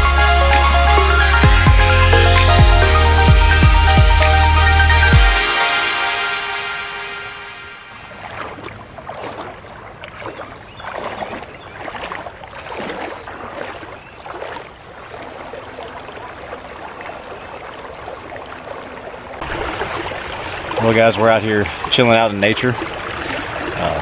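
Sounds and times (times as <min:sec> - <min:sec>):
creek water babbling over rocks: 0:07.9 - 0:24.0.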